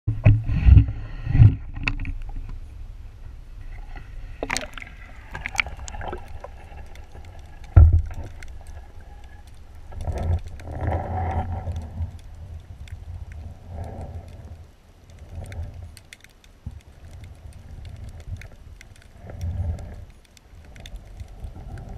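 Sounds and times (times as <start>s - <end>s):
muffled water sloshing: 0.1s - 14.6s.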